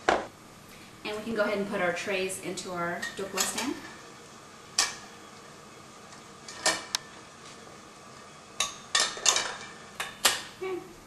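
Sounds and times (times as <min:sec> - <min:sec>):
metal trays clinking on wire rack: 0:08.6 - 0:10.4.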